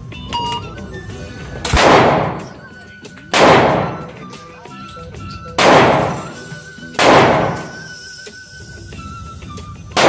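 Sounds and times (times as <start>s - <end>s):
background music: 0.0s - 10.0s
pistol shots reverberating indoors: 1.7s - 2.5s, 3.3s - 4.1s, 5.6s - 6.4s, 7.0s - 7.9s.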